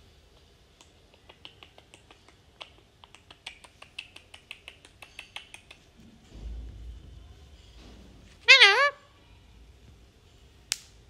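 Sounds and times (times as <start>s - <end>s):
parakeet clicking: 0.8s - 5.9s.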